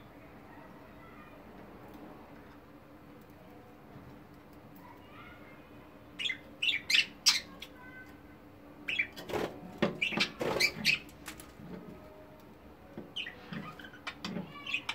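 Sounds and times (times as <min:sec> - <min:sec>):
wings fluttering: 0:09.2 - 0:11.7
budgerigars chirping: 0:10.0 - 0:11.1.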